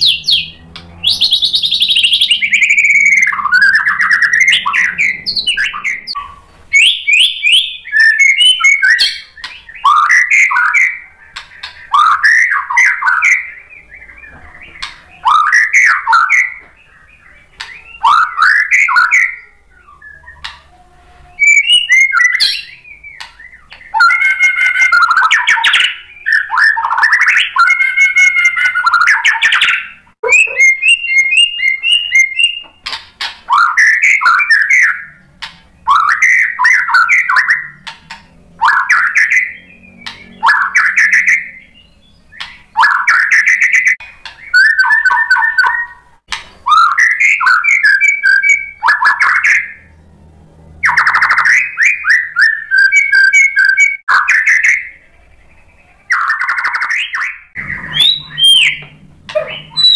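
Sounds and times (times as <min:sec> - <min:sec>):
bird singing whistled phrases: 0:00.0 - 0:32.9, 0:33.5 - 0:35.2, 0:35.8 - 0:37.9, 0:38.6 - 0:46.1, 0:46.7 - 0:49.9, 0:50.8 - 0:59.9.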